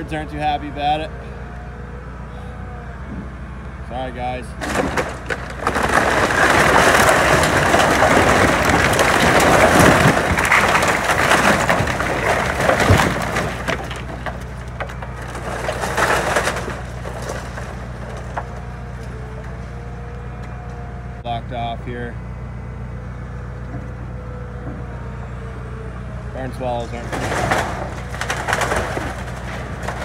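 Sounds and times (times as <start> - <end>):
excavator engine running: 0.0 - 30.0
timbers cracking and crashing: 3.9 - 21.2, 26.3 - 30.0
falling boards: 4.6 - 18.6, 26.8 - 30.0.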